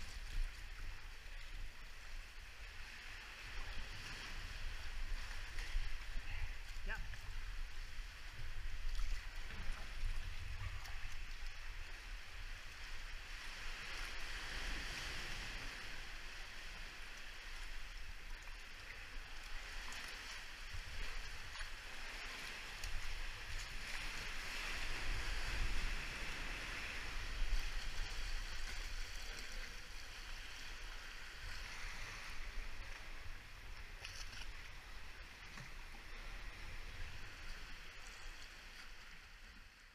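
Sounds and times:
water sloshing around hull: 0.0s - 39.9s
paddle strokes splashing: 13.5s - 39.4s.

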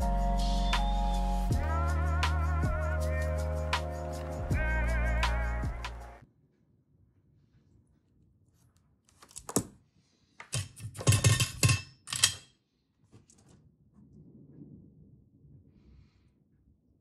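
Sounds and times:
tools clattering on wooden desk: 10.4s - 12.5s
faint handling noise: 13.0s - 14.2s.

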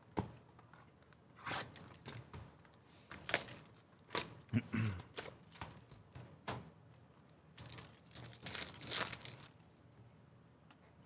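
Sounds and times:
foil pack tearing and crinkling: 1.4s - 2.3s, 3.1s - 4.4s, 7.6s - 9.7s.

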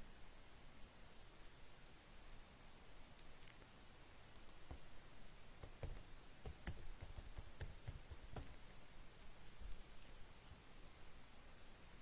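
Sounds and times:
computer keyboard typing: 4.3s - 4.9s, 5.6s - 8.6s.

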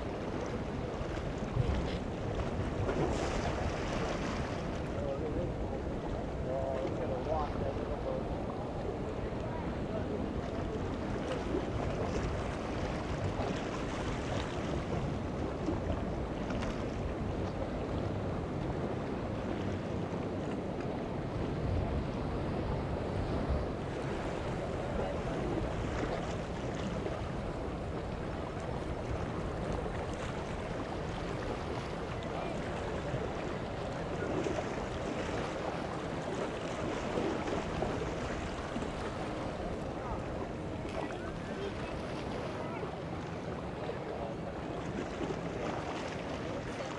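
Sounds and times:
small waves against rocks: 0.0s - 5.0s
wind rumble on microphone: 0.0s - 46.9s
small waves breaking on rocks: 0.1s - 46.9s.

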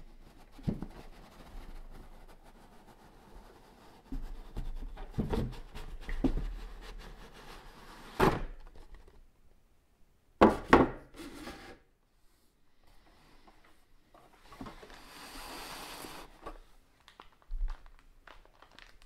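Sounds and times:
box knocking on wooden table: 10.4s - 11.0s.

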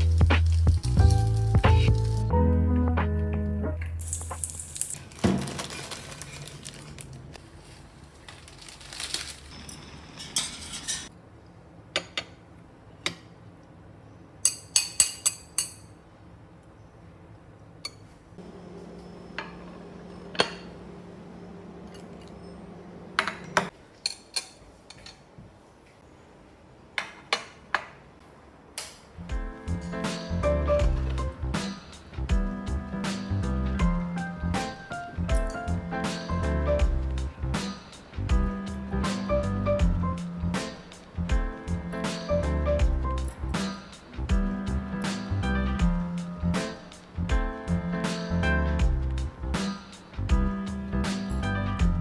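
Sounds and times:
utensils clinking on ceramic plates: 9.5s - 11.1s, 14.4s - 16.0s.

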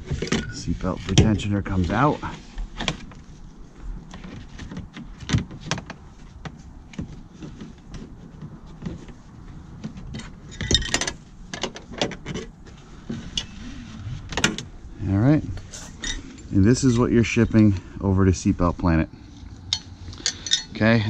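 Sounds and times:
metal seat belt parts rattling: 9.8s - 14.7s, 15.6s - 16.5s, 19.6s - 21.0s.

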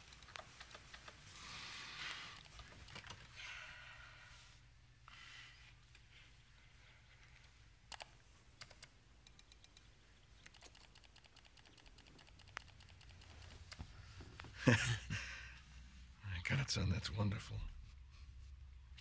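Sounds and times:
low steady hum: 0.0s - 19.0s
rapid faint ticks: 7.9s - 14.5s.

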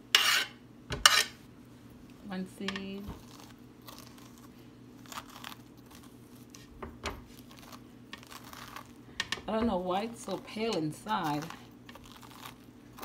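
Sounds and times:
squash pulp being scraped: 3.1s - 13.0s.

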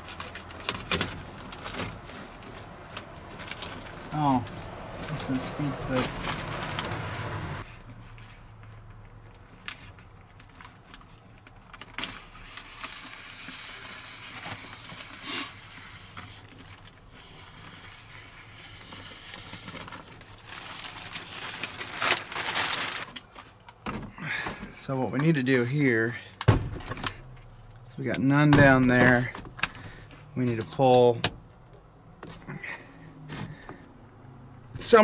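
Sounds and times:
plastic sheeting rustling: 0.0s - 8.5s, 9.6s - 23.6s.

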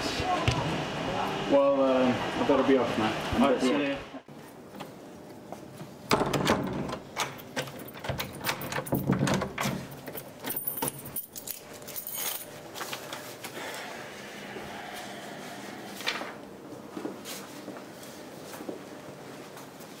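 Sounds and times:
keys jangling in door lock: 7.2s - 12.6s.

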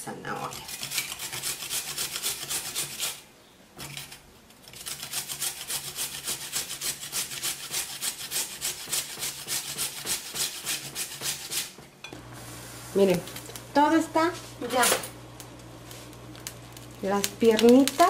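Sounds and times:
carrot grating on metal grater: 0.4s - 3.2s, 3.8s - 11.7s.

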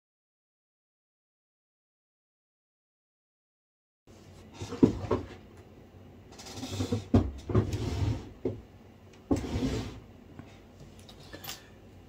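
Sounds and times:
rustling and scraping at a desk: 4.1s - 5.5s, 6.3s - 8.6s, 9.3s - 11.4s.

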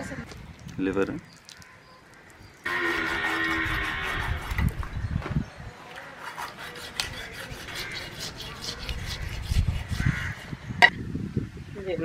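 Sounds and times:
knife scraping through raw flesh: 2.7s - 4.7s, 6.0s - 10.6s.

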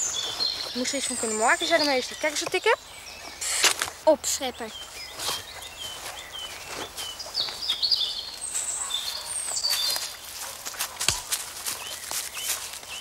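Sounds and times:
birds chirping and warbling: 0.0s - 13.0s
footsteps on dry leaves: 4.7s - 13.0s.

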